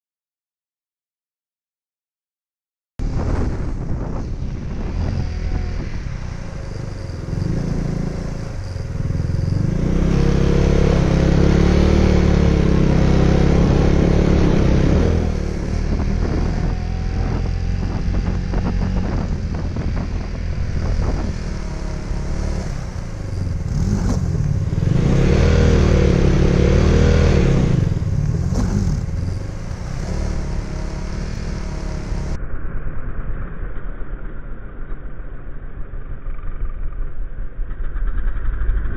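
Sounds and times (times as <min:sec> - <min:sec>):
motorcycle engine revving: 0:03.0 - 0:32.4, 0:37.6 - 0:38.9.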